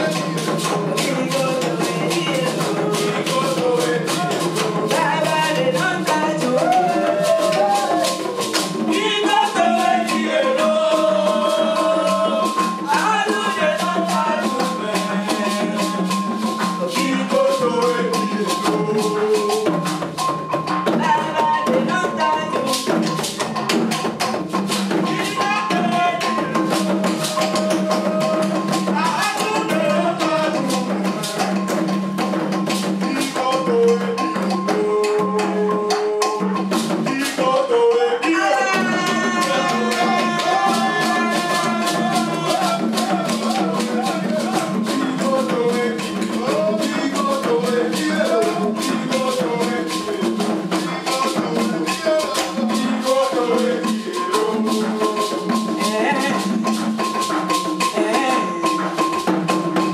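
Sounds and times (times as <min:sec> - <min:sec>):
fast hand drums: 0:00.0 - 0:59.9
voices singing: 0:00.0 - 0:59.9
hand clapping: 0:26.9 - 0:29.6.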